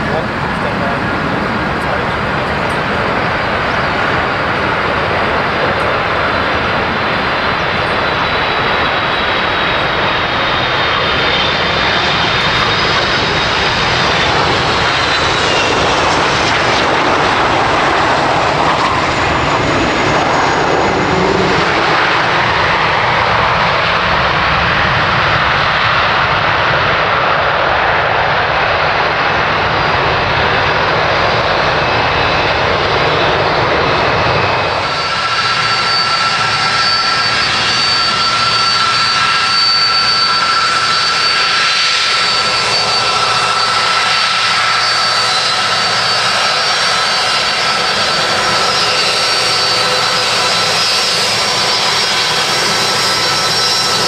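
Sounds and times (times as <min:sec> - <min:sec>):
jet airliner engines: 0:00.0 - 0:54.0
thin engine whine: 0:31.2 - 0:54.0.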